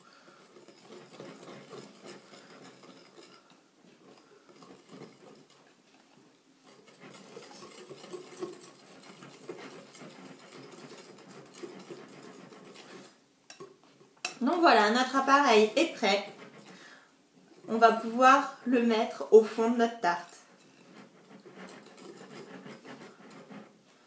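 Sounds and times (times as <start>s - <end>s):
whisk beating batter in bowl: 0.0s - 24.0s.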